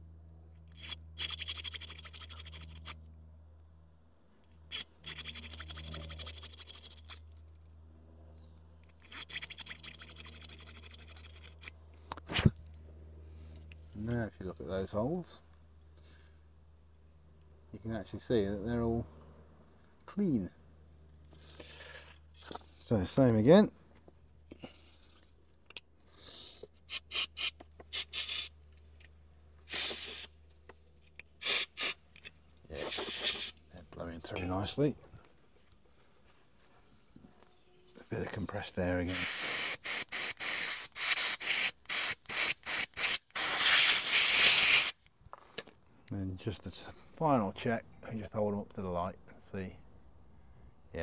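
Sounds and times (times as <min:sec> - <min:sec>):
aerosol spray hissing: 0:26.9 - 0:28.5, 0:29.7 - 0:30.3, 0:31.4 - 0:32.0, 0:32.8 - 0:33.6, 0:39.1 - 0:45.0.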